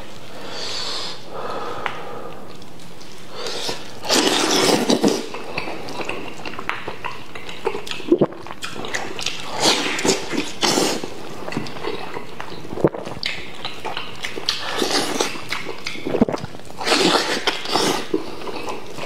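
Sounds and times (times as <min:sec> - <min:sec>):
person chewing wetly: 0:01.8 - 0:19.0
slurping and smacking: 0:01.8 - 0:19.0
meat tearing: 0:03.6 - 0:12.6
mouth clicks: 0:06.0 - 0:18.2.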